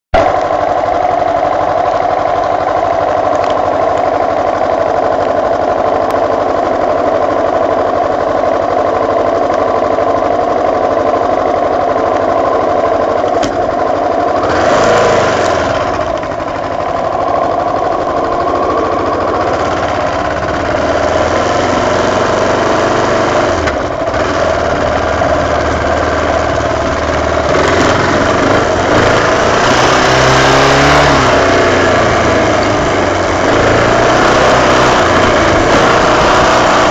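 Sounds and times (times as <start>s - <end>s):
motorcycle engine: 0.1s - 36.9s.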